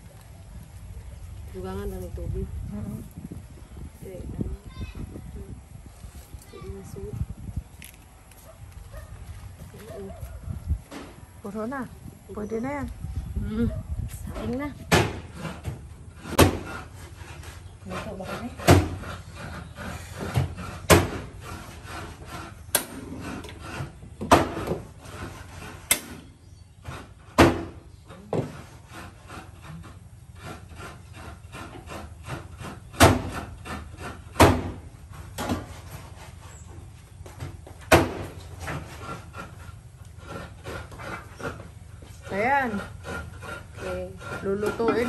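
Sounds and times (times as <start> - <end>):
sharp knocks: 14.9 - 16.8, 34.3 - 34.8.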